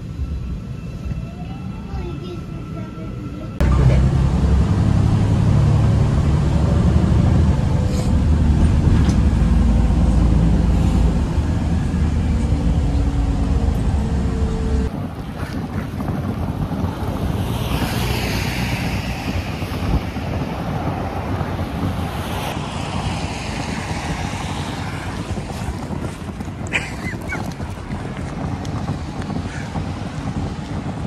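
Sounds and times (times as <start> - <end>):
metro carriage rumble: 0.0 - 31.0
wind buffeting microphone: 0.0 - 31.0.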